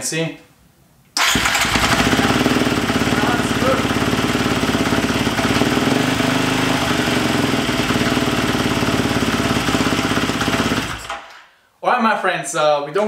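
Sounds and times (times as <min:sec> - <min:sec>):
dirt bike engine idling: 0:01.3 - 0:11.4.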